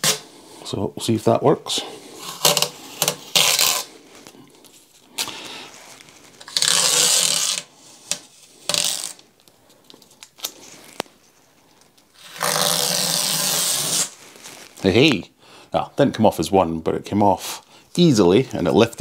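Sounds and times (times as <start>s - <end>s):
tape peeling off glass: 0.0s - 0.2s, 2.2s - 3.9s, 6.4s - 9.2s, 12.2s - 14.7s.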